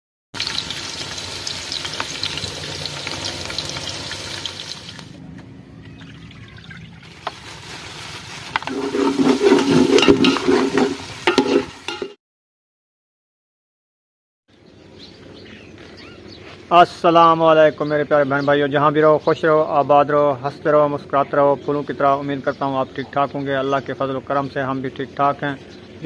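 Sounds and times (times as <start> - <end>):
onions sizzling in oil: 0.4 - 5.2, 7.0 - 12.2.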